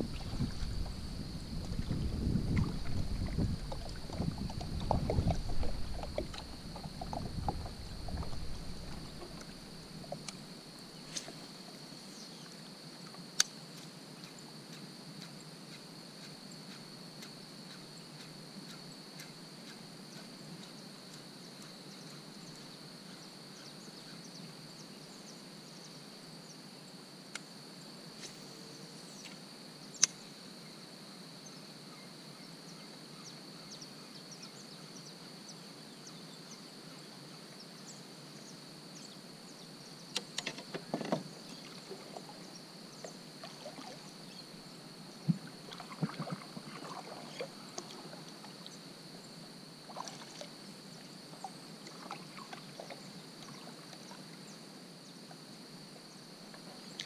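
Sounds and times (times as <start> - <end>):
kayak hull rumbling: 0.0 - 10.5, 40.4 - 44.2, 45.2 - 48.7.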